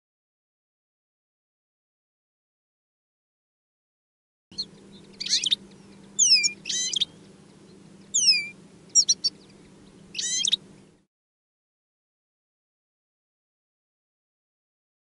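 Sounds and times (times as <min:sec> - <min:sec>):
finches chirping: 0:04.5 - 0:11.0
faint low hum: 0:04.5 - 0:11.1.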